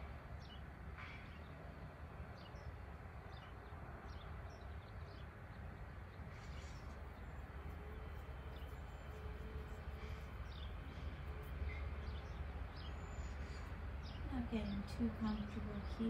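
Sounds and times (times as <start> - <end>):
faint steady hum: 1.8 - 16.0
faint bird chirps: 6.3 - 16.0.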